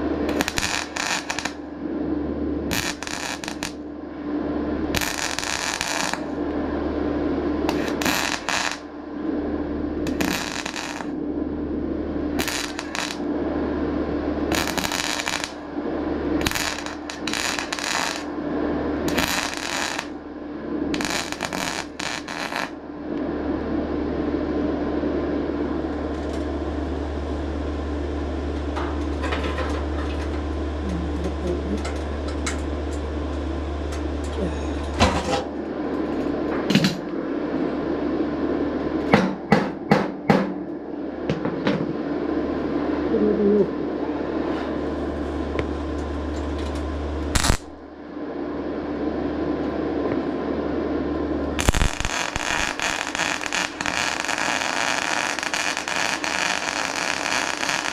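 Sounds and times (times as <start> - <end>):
steady low hum: 0.0 - 57.9
welder crackling and spitting: 0.3 - 1.6, 2.7 - 3.8, 4.9 - 6.4, 7.7 - 8.8, 10.1 - 11.1, 12.4 - 13.2, 14.5 - 15.6, 16.4 - 18.3, 19.1 - 20.1, 20.9 - 22.7, 46.4 - 47.8, 51.6 - 57.9.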